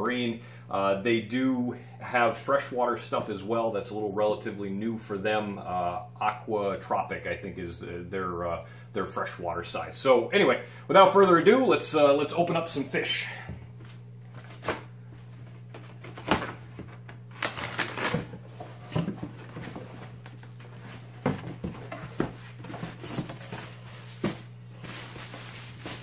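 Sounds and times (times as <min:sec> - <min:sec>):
steady low hum: 0:00.0 - 0:26.0
cardboard rustles and scrapes: 0:14.4 - 0:26.0
blade slitting packing tape: 0:17.3 - 0:18.3.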